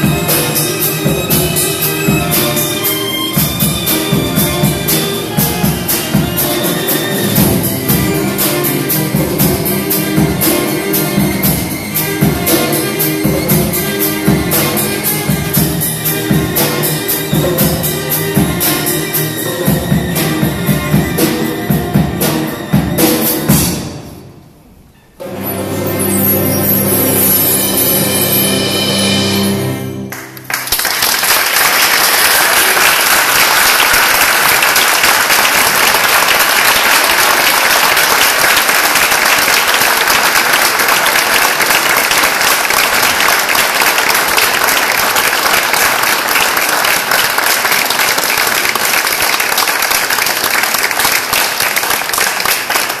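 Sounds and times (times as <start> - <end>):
audience applauding: 30.1 - 53.0.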